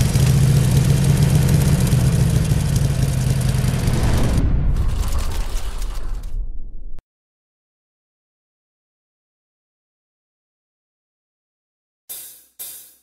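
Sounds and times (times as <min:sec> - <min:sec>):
motorcycle engine idling: 0:00.0 - 0:03.9.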